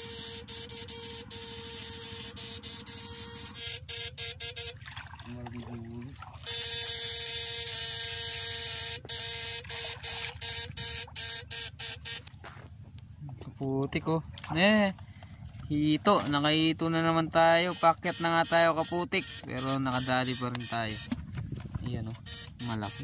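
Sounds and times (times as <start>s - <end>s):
electric buzzing: 0.0s - 4.8s, 6.5s - 12.5s
constant hum: 0.0s - 23.0s.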